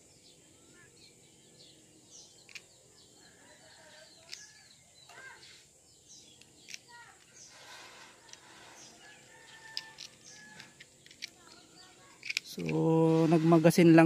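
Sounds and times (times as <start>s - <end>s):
small birds chirping: 0.0s - 14.0s
sharp light clicks: 12.2s - 12.8s.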